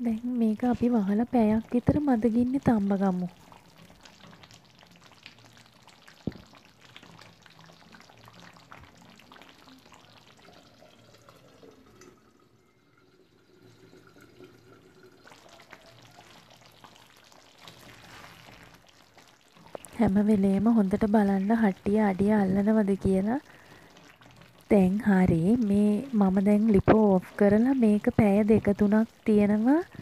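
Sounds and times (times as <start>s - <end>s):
curry bubbling in a pot: 0.1s - 30.0s.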